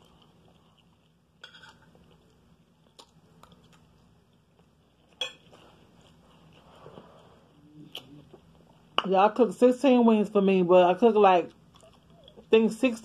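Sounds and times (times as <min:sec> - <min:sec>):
quiet chewing: 0:00.0 - 0:08.9, 0:11.5 - 0:12.5.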